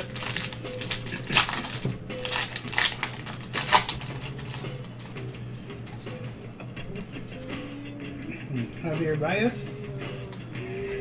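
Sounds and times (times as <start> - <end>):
plastic wrapper crinkling: 0.0 - 5.2.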